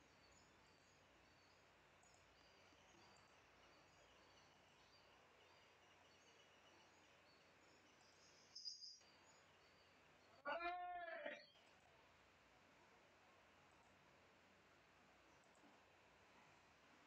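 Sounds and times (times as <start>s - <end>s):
faint high chirps: 0.0s - 12.2s
faint background hiss: 0.0s - 17.0s.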